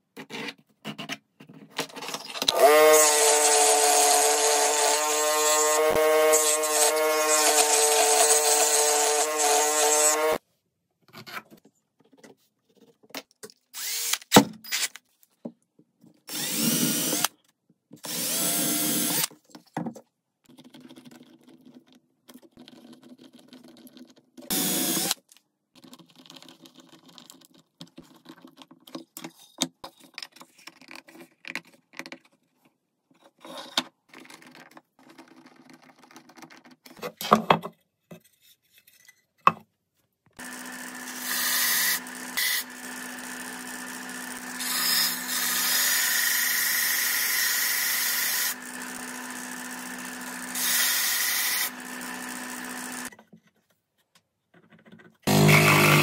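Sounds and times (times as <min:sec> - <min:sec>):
electric bench power tool: 0:02.5 - 0:10.4, 0:13.8 - 0:14.8, 0:16.3 - 0:17.3, 0:18.0 - 0:19.3, 0:24.5 - 0:25.2, 0:40.4 - 0:53.1, 0:55.3 - 0:56.0.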